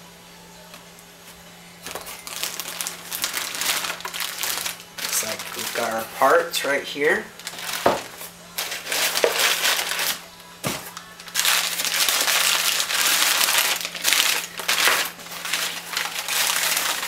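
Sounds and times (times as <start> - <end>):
paper rustling and crumpling: 1.8 - 6.5, 7.4 - 17.0.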